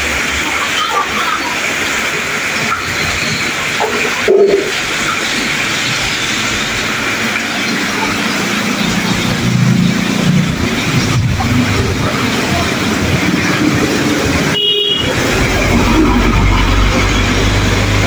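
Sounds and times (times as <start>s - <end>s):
heavy rain pouring: 0.0s - 18.0s.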